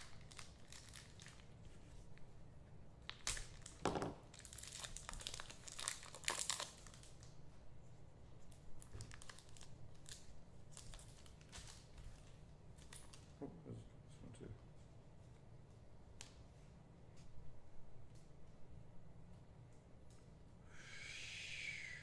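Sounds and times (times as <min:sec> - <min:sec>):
wrappers crinkling and tearing: 0:00.0 - 0:02.1, 0:03.0 - 0:07.4, 0:08.5 - 0:13.3.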